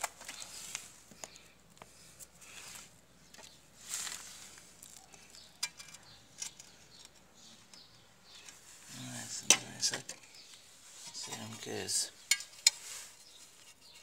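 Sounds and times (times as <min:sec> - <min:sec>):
soft scrapes: 0:12.6 - 0:14.0.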